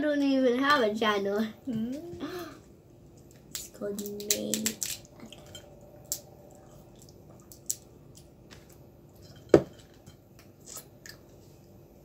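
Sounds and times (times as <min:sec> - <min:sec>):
crab shells cracking: 0:03.2 - 0:05.4, 0:07.0 - 0:08.4
wet squishy eating sounds: 0:03.2 - 0:08.9.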